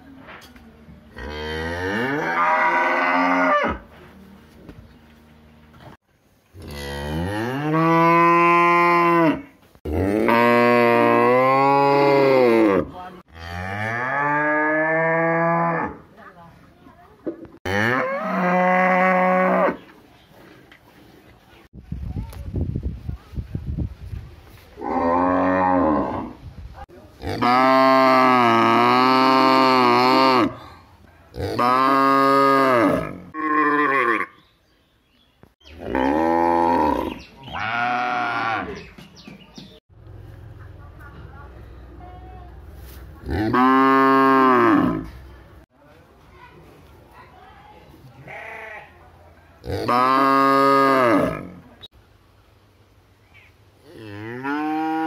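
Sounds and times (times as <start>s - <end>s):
cows mooing: 1.2s - 3.8s, 17.6s - 19.8s, 31.3s - 34.4s, 35.8s - 38.8s, 43.3s - 45.2s, 49.6s - 51.6s, 53.9s - 55.0s.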